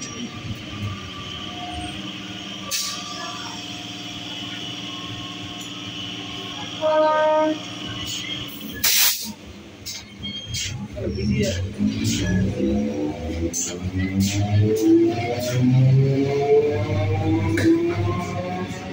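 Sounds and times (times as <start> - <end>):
electric train humming: 0.0 - 9.9, 10.8 - 18.9
train horn blast: 6.7 - 7.8
loud hiss-like burst: 8.8 - 9.4.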